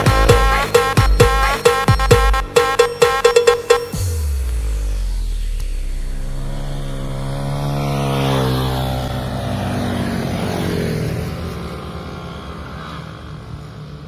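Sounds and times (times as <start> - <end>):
motor engine droning: 3.9 - 12.6.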